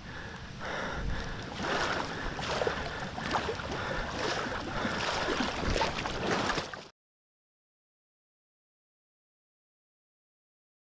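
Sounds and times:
water sloshing and splashing: 0.6 - 6.9.

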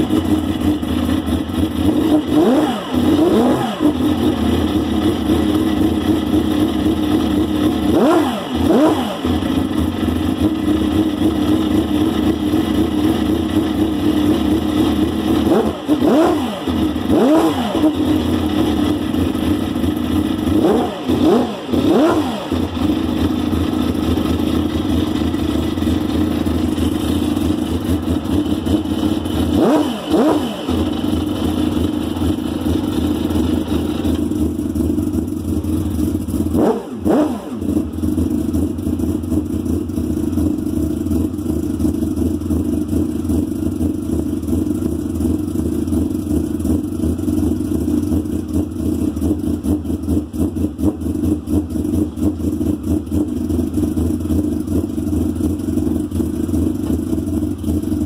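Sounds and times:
race car engine idling fast: 0.0 - 58.0.

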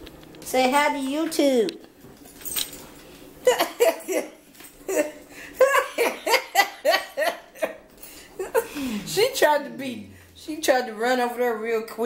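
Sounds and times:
person laughing: 3.4 - 9.1.

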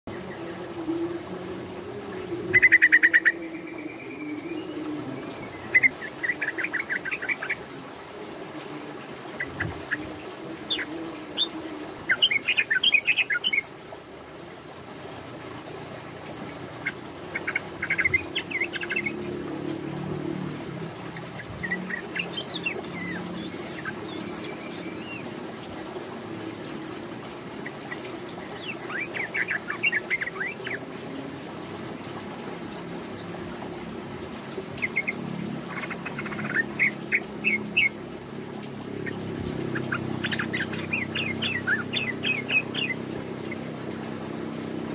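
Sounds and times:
bird chattering song: 21.6 - 25.2, 39.0 - 43.6.

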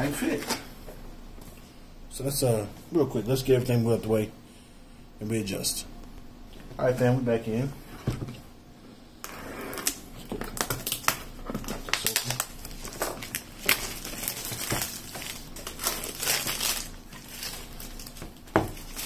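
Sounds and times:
plastic wrap crinkling: 9.8 - 19.0.

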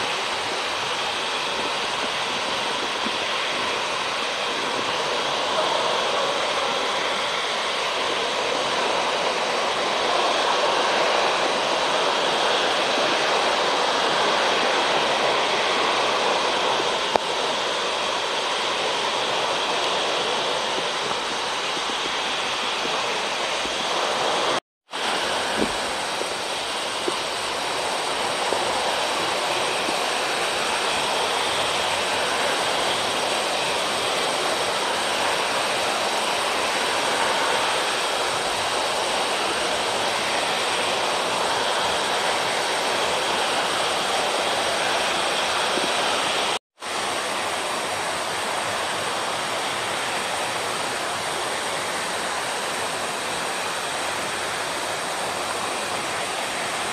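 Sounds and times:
steady rushing noise: 0.0 - 56.9.

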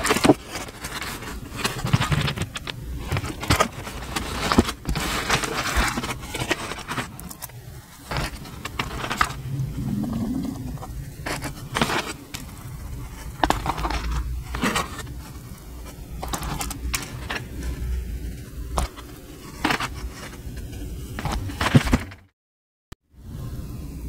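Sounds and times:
steady low rumble: 8.7 - 11.8.

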